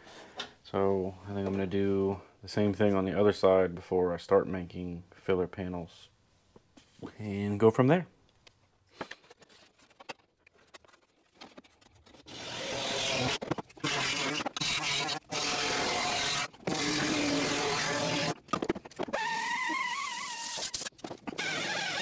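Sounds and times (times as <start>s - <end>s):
pneumatic grinder cutting steel: 12.3s - 18.4s.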